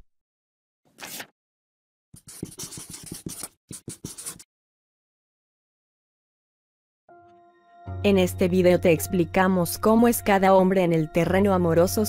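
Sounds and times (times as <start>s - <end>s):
pen scratching on paper: 2.2s - 4.5s.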